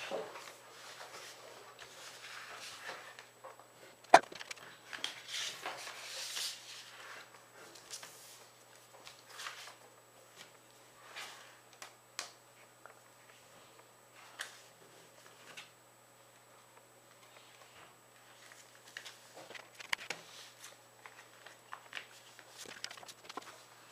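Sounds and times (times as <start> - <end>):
paper rustling and crinkling: 4.2 - 11.6, 18.2 - 23.9.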